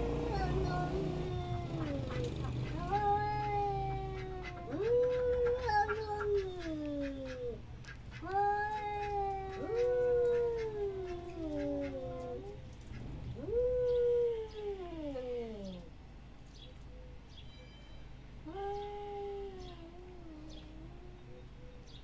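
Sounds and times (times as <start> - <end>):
cats yowling: 0.0 - 12.6.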